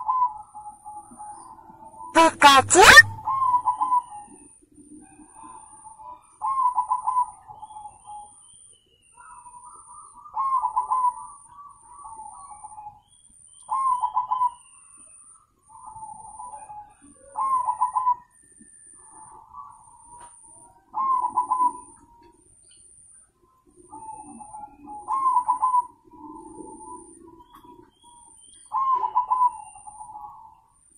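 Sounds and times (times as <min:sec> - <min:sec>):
dove cooing: 0:06.1 - 0:08.0, 0:09.2 - 0:11.4, 0:15.8 - 0:18.3, 0:20.8 - 0:22.3, 0:23.8 - 0:28.1, 0:28.7 - 0:30.5.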